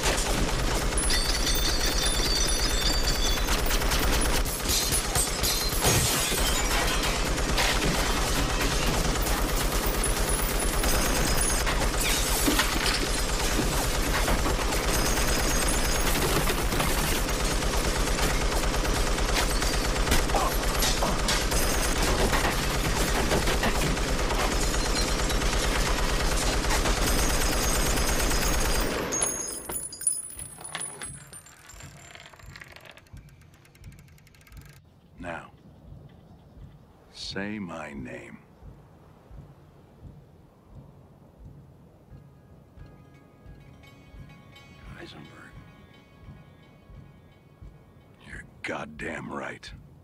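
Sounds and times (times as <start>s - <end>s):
machine gun automatic fire: 0.0s - 29.7s
faint mechanical clicks: 30.8s - 36.8s.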